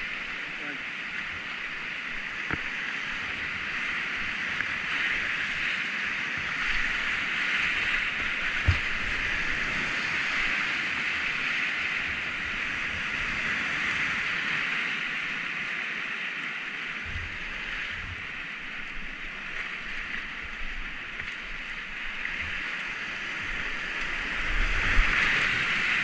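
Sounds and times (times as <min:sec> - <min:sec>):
rushing whitewater: 0:00.0 - 0:26.0
kayak thump: 0:02.4 - 0:03.4, 0:08.2 - 0:09.3.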